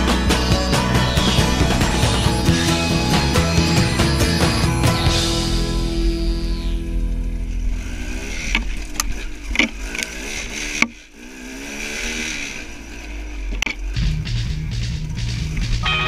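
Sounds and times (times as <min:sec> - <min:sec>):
rock music: 0:00.0 - 0:09.0, 0:14.0 - 0:16.0
dirt bike engine revving: 0:00.0 - 0:16.0.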